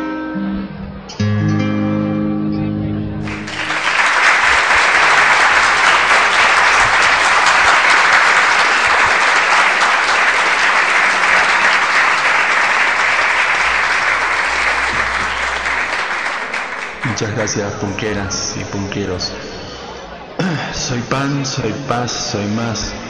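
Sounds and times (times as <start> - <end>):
guitar song: 0.0 - 3.9
audience applauding: 3.2 - 19.1.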